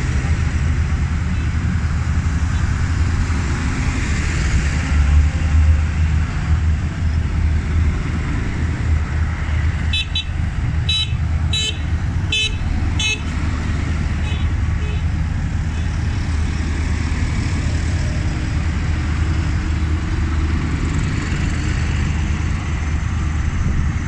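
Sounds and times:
tractor diesel engines passing: 0.0 - 24.0
horn tooting: 9.9 - 13.3, 14.2 - 15.1.

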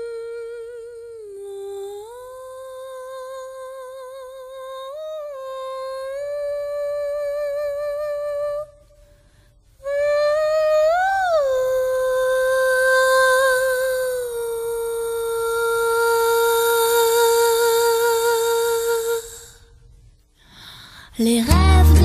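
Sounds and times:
person humming a slow melody: 0.0 - 8.7.

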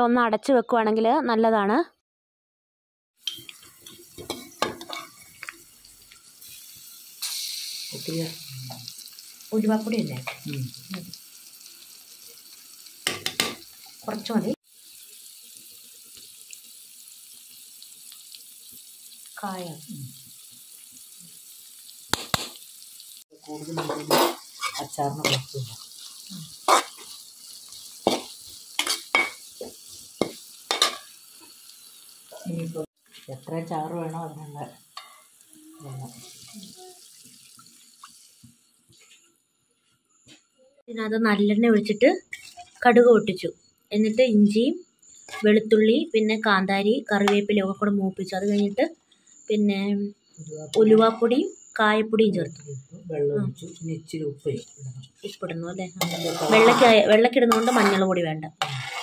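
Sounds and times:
metal spoon scraping a pan: 3.2 - 5.6, 23.5 - 31.6, 42.3 - 42.9, 45.2 - 45.6, 55.2 - 59.0
food frying in oil: 3.2 - 52.3, 54.6 - 59.0
steady hiss: 3.3 - 39.3
spoon tapping on pan: 13.0 - 13.6.

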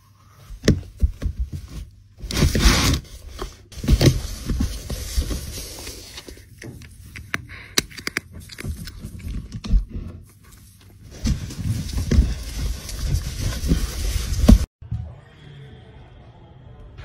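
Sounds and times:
cardboard box scraping and knocking: 0.6 - 6.2, 11.0 - 14.7.

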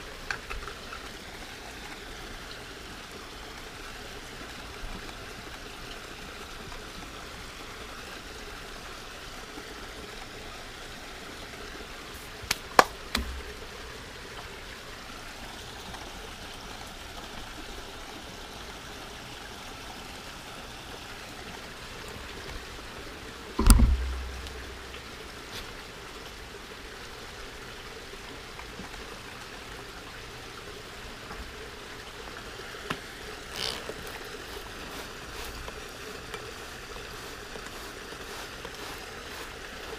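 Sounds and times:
heavy thump: 23.6 - 24.7
spray bottle hiss: 37.6 - 39.9.

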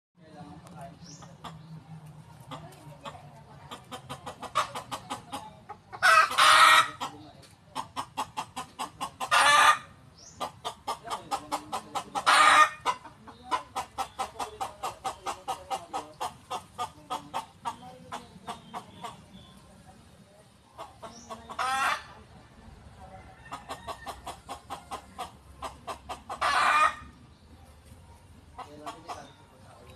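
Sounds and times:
chicken cackling: 2.3 - 19.6, 20.7 - 22.4, 23.0 - 27.5.

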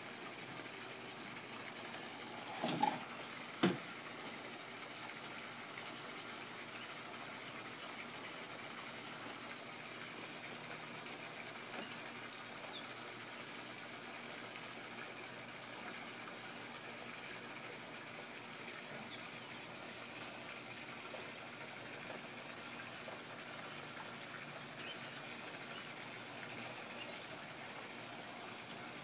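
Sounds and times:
faint steady hiss: 0.0 - 29.0.

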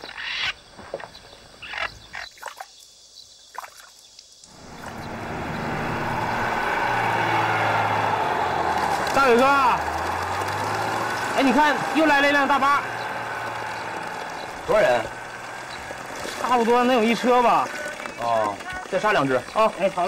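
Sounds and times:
bus engine humming: 4.5 - 18.4
road noise: 4.5 - 20.0.

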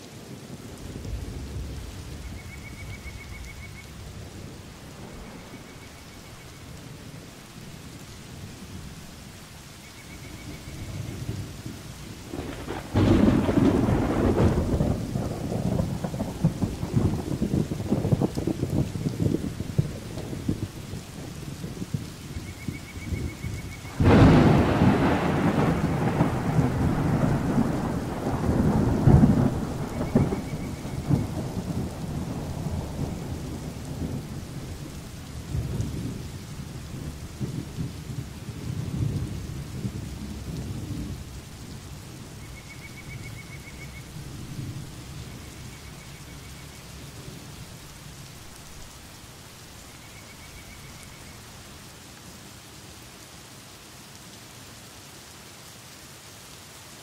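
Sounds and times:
steady rain: 0.0 - 57.0
thunder rumbling: 0.3 - 9.1, 10.2 - 49.1.

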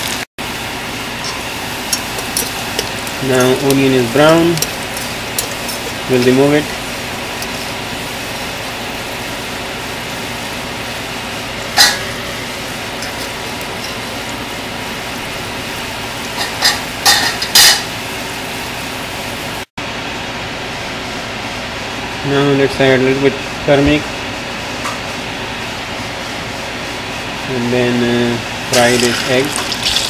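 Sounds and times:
metal spoon scraping a pot: 1.2 - 6.8.

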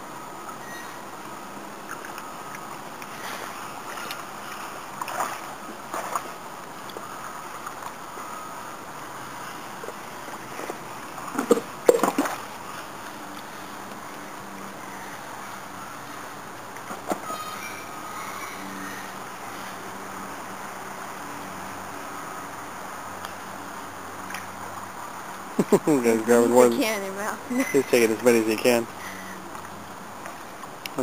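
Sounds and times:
water sloshing and splashing: 1.3 - 20.0
sharp splashes: 3.0 - 6.4, 10.5 - 12.8.

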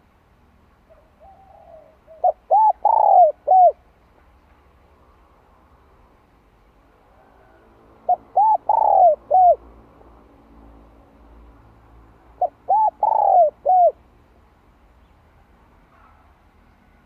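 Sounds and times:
dove cooing: 0.9 - 3.8, 8.0 - 9.6, 12.4 - 14.0.

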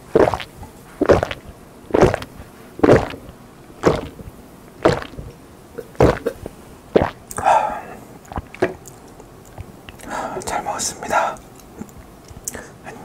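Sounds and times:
person gulping a drink: 0.2 - 7.5, 8.2 - 10.1.

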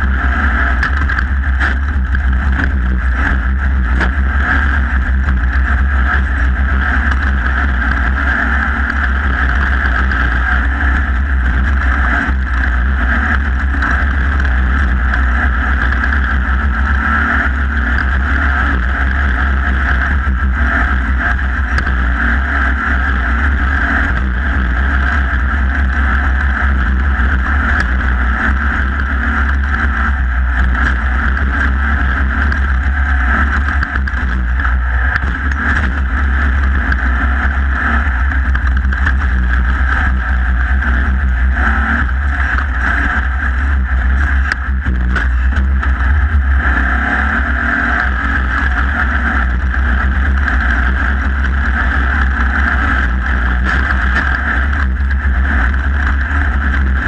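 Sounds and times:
race car engine running hard: 0.0 - 57.0
wind on microphone rumble: 0.0 - 57.0.

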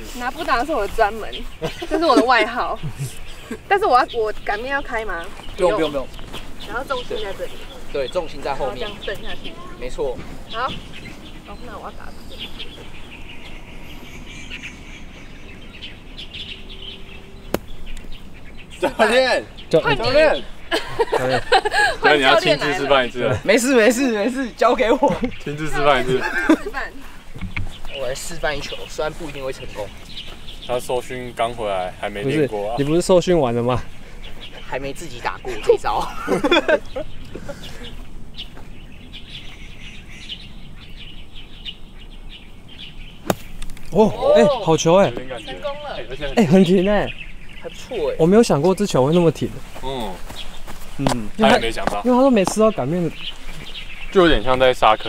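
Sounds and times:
birds chirping: 0.0 - 55.0
faint outdoor background noise: 0.0 - 55.0
golf club hitting ball: 17.5 - 18.1, 43.2 - 44.0.

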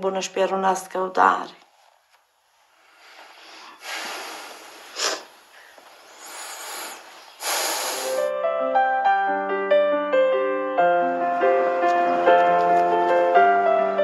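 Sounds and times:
man breathing heavily through nose: 2.7 - 8.3
sharp sniff: 2.8 - 8.3
gentle piano music: 8.1 - 14.0.

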